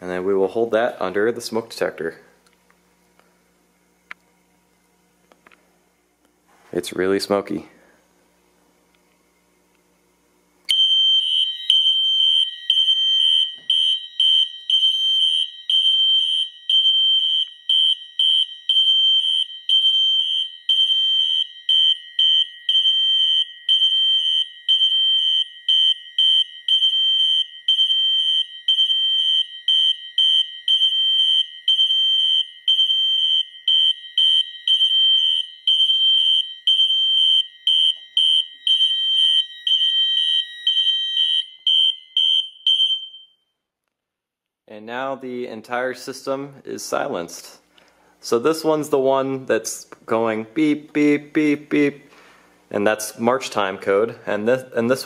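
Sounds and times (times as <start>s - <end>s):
fire alarm horns beeping: 10.7s - 43.5s.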